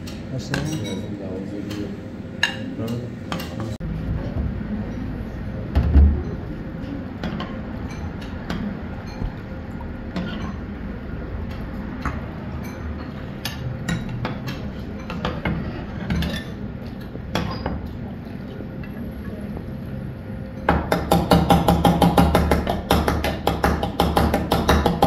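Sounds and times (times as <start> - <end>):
metal ladle clinking on dishes: 0.5 - 1.1.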